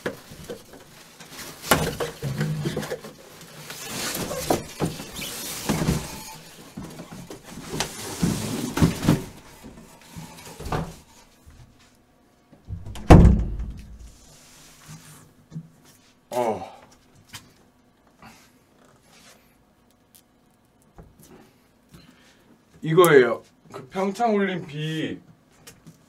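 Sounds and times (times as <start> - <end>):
loud heavy thump: 12.7 - 14.1.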